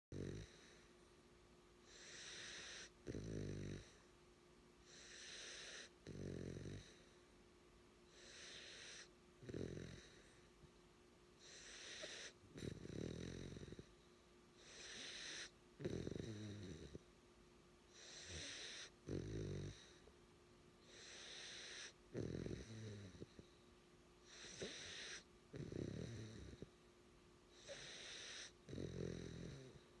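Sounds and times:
puppy snoring: 0.1s - 0.9s, 1.8s - 4.1s, 4.8s - 7.2s, 8.0s - 10.5s, 11.4s - 14.0s, 14.6s - 17.1s, 17.9s - 20.1s, 20.8s - 23.6s, 24.2s - 26.8s, 27.5s - 30.0s.

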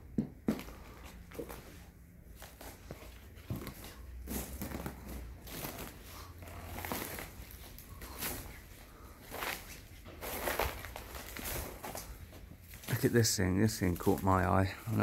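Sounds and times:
dry shrubs rustling and crackling: 2.5s - 15.0s.

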